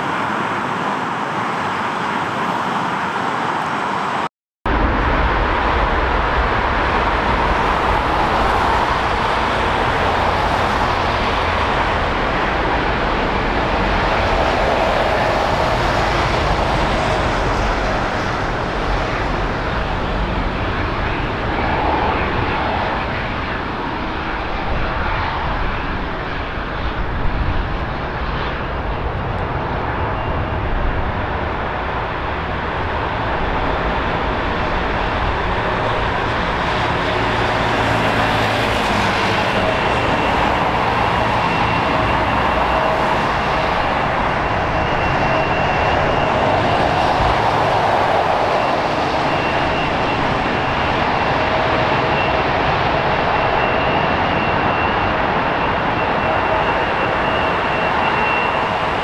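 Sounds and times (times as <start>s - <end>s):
jet engines rushing: 0.0s - 59.0s.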